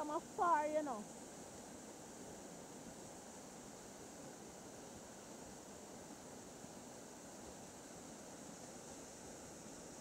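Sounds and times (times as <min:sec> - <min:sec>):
waterfall rushing over rocks: 0:00.0 - 0:10.0.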